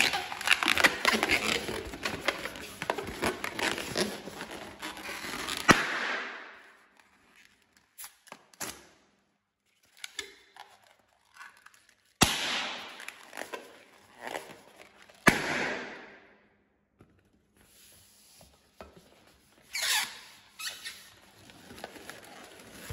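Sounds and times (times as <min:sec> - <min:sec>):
rubber balloon squeaking: 0:00.0 - 0:05.8, 0:19.7 - 0:21.3
balloon popping: 0:05.5 - 0:06.6.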